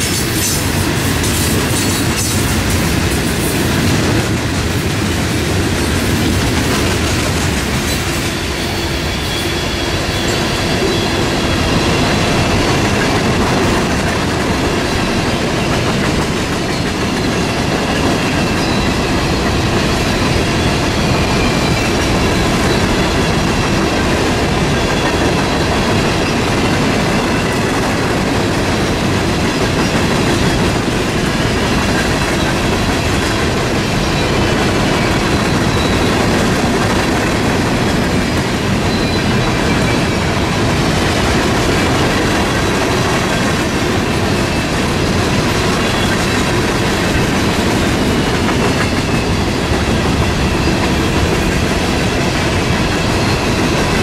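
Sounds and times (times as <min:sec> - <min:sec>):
steel wheels clattering on rails: 0:00.0 - 0:54.0
wheel squeal: 0:08.3 - 0:12.6, 0:33.9 - 0:36.4.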